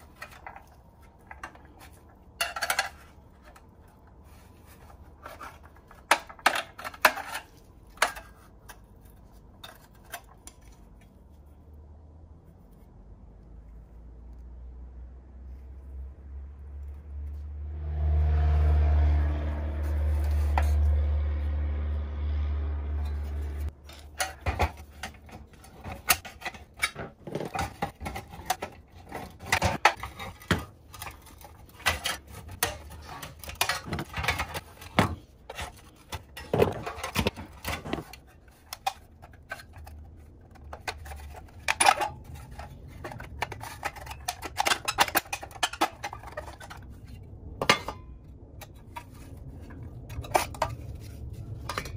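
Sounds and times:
metal parts clinking and scraping: 0:00.0 - 0:11.3, 0:23.0 - 0:51.9
low steady drone: 0:17.5 - 0:23.7.

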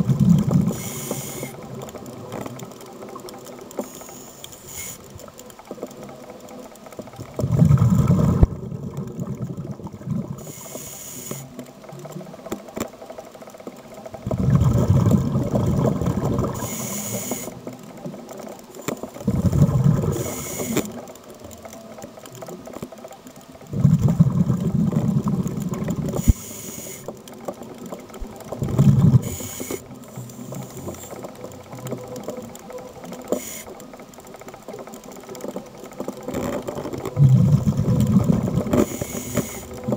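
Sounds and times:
hissing regulator inhalations: 0:00.7 - 0:01.6, 0:03.8 - 0:05.1, 0:10.4 - 0:11.6, 0:16.4 - 0:17.6, 0:20.1 - 0:20.9, 0:26.2 - 0:27.1, 0:29.1 - 0:31.2, 0:33.3 - 0:33.7, 0:38.7 - 0:39.8
bubbling exhalations underwater: 0:07.4 - 0:10.4, 0:14.2 - 0:16.6, 0:19.2 - 0:20.3, 0:23.7 - 0:26.2, 0:28.6 - 0:29.3, 0:37.0 - 0:38.9.

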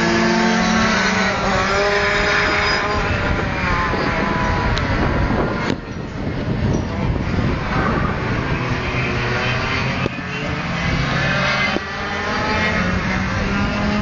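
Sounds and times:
kart engines racing: 0:00.0 - 0:14.0.

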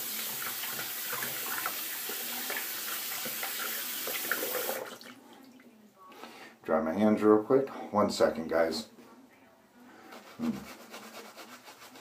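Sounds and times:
water running from sink tap: 0:00.0 - 0:05.1.

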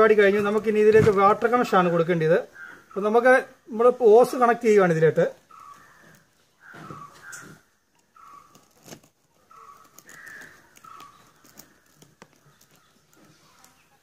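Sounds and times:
crows cawing: 0:02.4 - 0:03.2, 0:05.4 - 0:13.6.

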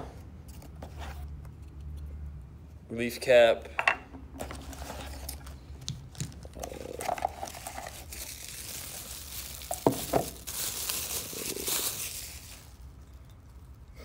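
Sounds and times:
plastic bag crinkling: 0:04.6 - 0:13.9.

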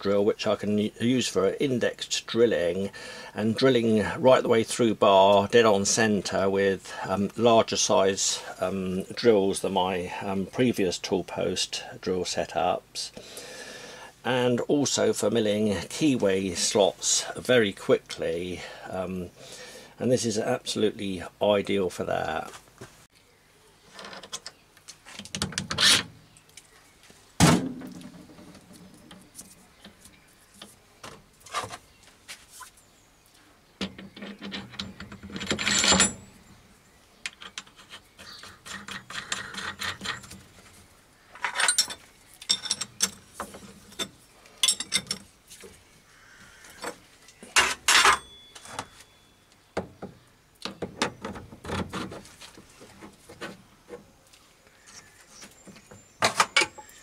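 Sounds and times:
metal tooling clanking: 0:33.8 - 0:36.4, 0:41.4 - 0:43.3, 0:43.9 - 0:45.3, 0:47.5 - 0:48.9.

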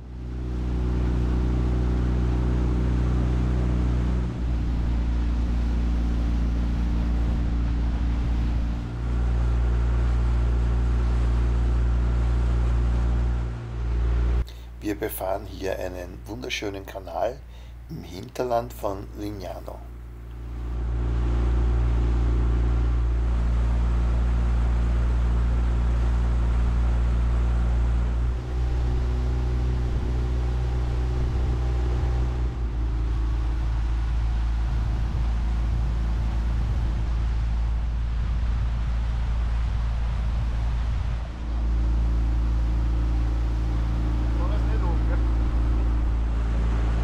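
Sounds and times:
outboard motor drone: 0:00.0 - 0:17.9, 0:18.7 - 0:47.0
rush of water and air: 0:26.4 - 0:47.0.

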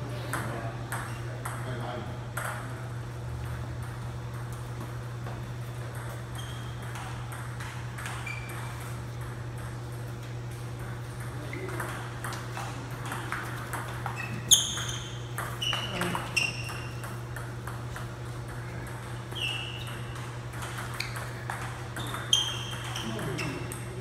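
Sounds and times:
steady low hum: 0:00.0 - 0:24.0
table tennis balls clicking: 0:05.8 - 0:24.0
short high squeaks: 0:14.2 - 0:17.0, 0:19.3 - 0:20.1, 0:22.0 - 0:23.7.

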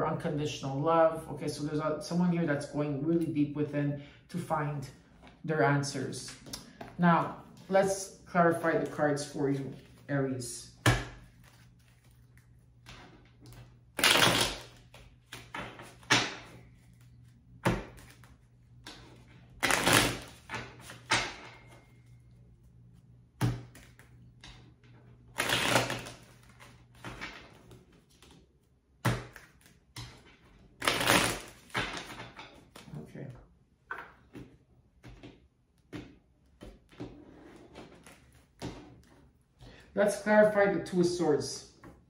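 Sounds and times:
cards being shuffled: 0:11.2 - 0:21.1, 0:25.3 - 0:28.4, 0:29.1 - 0:33.0.

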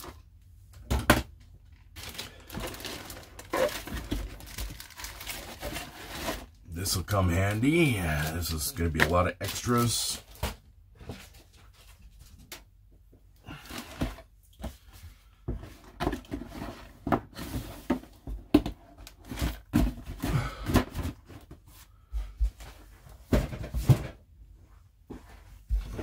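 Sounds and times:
box and plastic bags rustling: 0:00.9 - 0:12.7.

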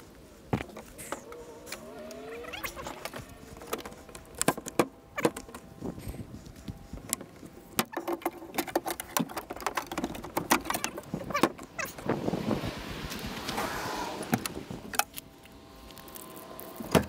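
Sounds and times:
gear clattering on boat deck: 0:07.1 - 0:11.8.

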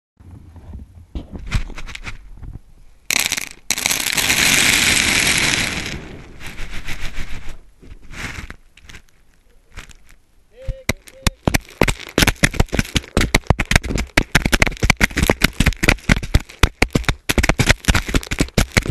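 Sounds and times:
grain rattling: 0:03.0 - 0:18.9
rush of pouring grain: 0:03.1 - 0:09.0.

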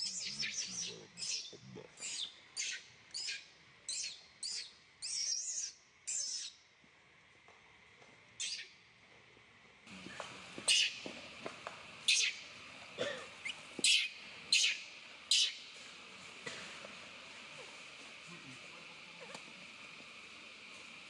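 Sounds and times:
baby monkey squealing: 0:00.0 - 0:06.5, 0:10.7 - 0:11.0, 0:12.1 - 0:12.4, 0:13.8 - 0:15.6.

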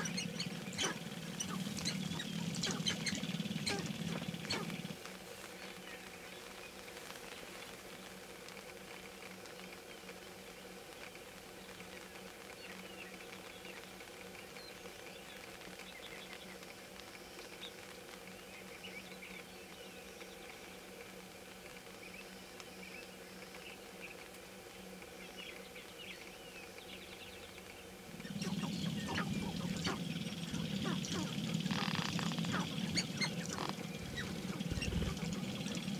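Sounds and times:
birds cooing and cackling: 0:00.0 - 0:05.0, 0:28.1 - 0:35.9
grouse clucks and chirps: 0:00.0 - 0:05.0, 0:28.1 - 0:35.9
steady low hum: 0:00.0 - 0:09.3, 0:17.0 - 0:35.9.

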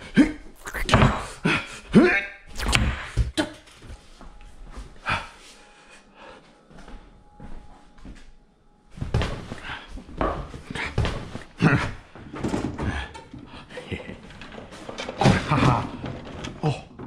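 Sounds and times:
quiet footsteps: 0:06.7 - 0:08.4.

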